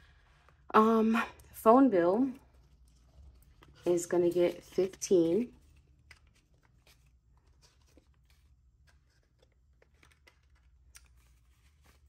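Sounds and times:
paper banknotes rustling: 0:02.6 - 0:12.0.

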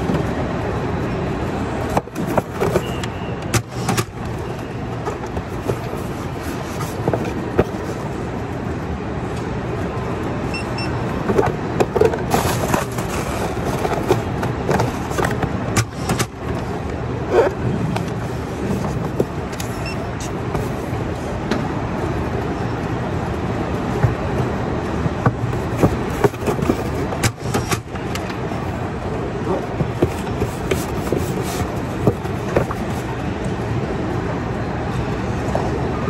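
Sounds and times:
machinery hum: 0:00.0 - 0:36.0
knocks and rustles of packing: 0:01.8 - 0:08.1, 0:11.2 - 0:16.6, 0:18.0 - 0:21.0, 0:23.9 - 0:28.9, 0:29.5 - 0:33.2.

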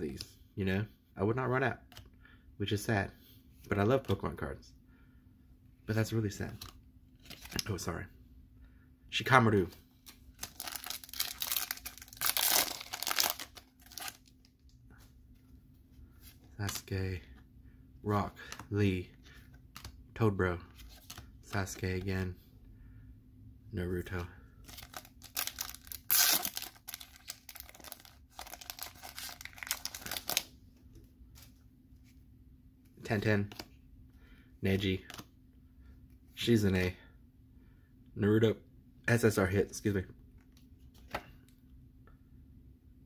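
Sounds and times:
foil wrapper tearing and crinkling: 0:10.4 - 0:14.3, 0:24.7 - 0:30.4.

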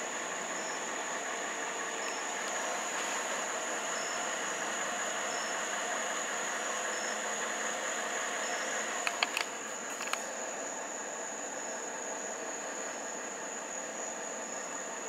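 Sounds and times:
car engine idling: 0:00.0 - 0:11.0
sharp clicks: 0:09.0 - 0:10.3.

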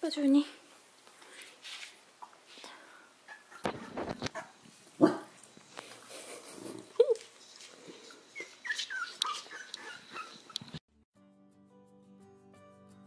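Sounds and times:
puppies squeaking and whimpering: 0:03.3 - 0:04.6, 0:08.2 - 0:10.8.

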